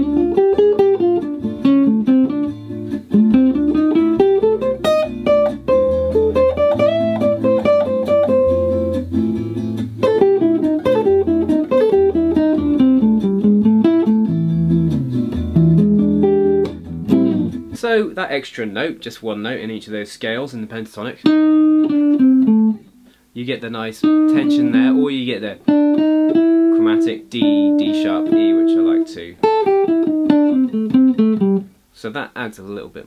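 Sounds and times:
electric guitar solo: 0.0s - 17.8s, 21.2s - 23.2s, 24.0s - 31.7s
low bass notes: 3.0s - 17.8s.

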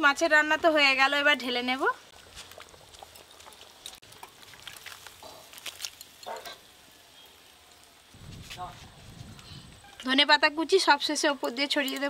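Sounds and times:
metal pan and tongs clinking: 5.2s - 6.7s, 11.4s - 12.0s.

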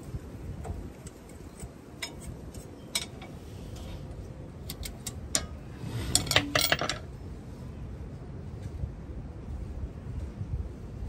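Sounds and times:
metal tools clinking on brake hardware: 1.3s - 3.4s, 4.6s - 7.0s.

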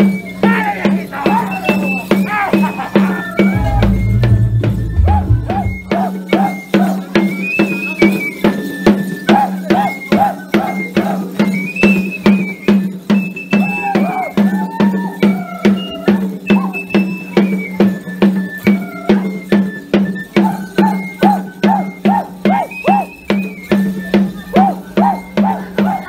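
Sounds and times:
rattle or shaker: 1.3s - 19.8s, 20.4s - 26.0s
festive dance music: 1.4s - 6.5s
high whistling melody: 1.4s - 14.0s, 15.8s - 25.7s.

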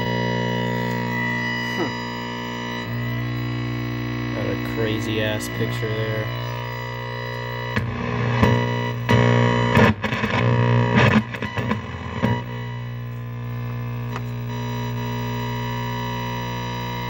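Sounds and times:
television electrical buzz: 0.0s - 17.0s.

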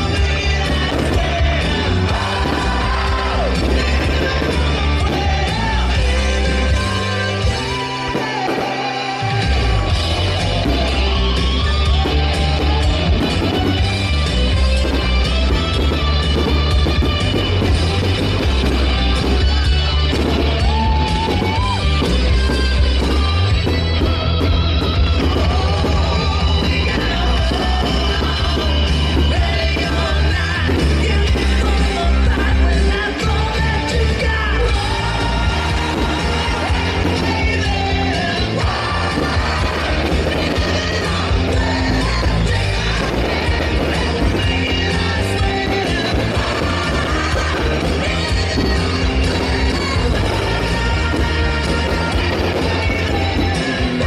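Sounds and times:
rock music with singer: 0.0s - 54.0s.

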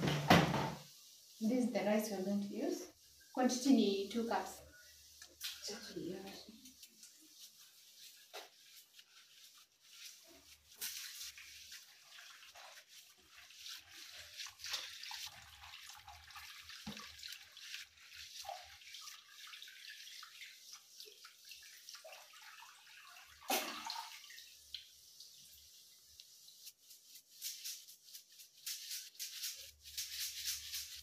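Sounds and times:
water swishing and splashing: 0.4s - 31.0s.

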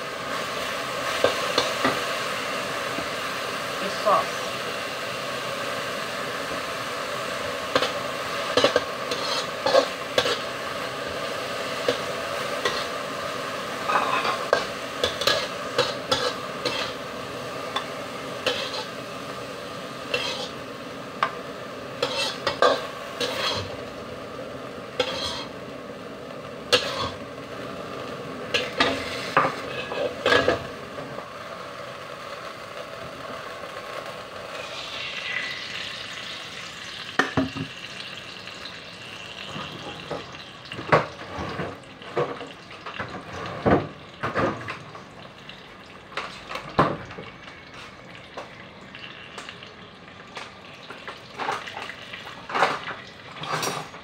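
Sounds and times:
bean sprouts sizzling in wok: 0.0s - 54.0s
metal spatula scraping pan: 7.7s - 10.5s, 13.8s - 17.0s, 18.4s - 19.0s, 20.1s - 20.6s, 22.0s - 23.8s, 25.0s - 25.5s, 26.7s - 27.2s.

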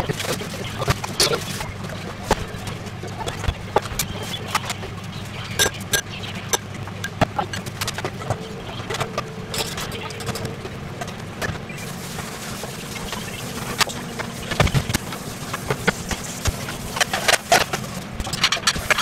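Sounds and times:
steady low hum: 0.0s - 19.0s
dishes and utensils clinking: 5.5s - 11.6s.

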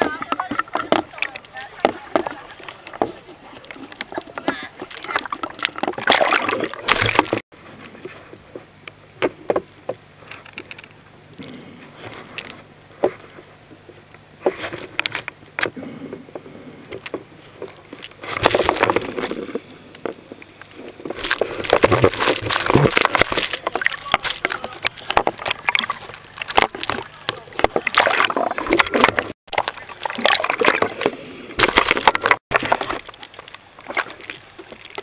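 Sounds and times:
water splashing: 0.0s - 7.4s, 17.4s - 35.0s
muffled underwater clicks and knocks: 0.0s - 11.0s, 12.2s - 35.0s
steady low hum: 0.0s - 35.0s.

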